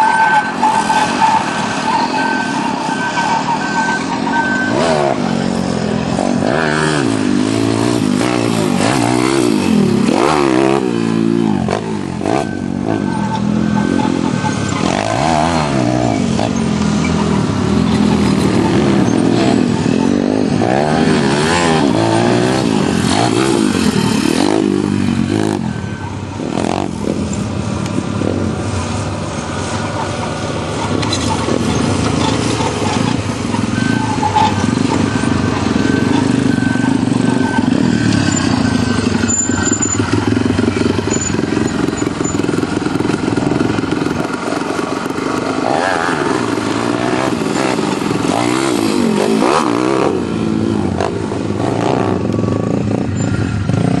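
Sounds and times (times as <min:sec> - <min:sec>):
dirt bike engines revving: 0:00.0 - 0:54.0.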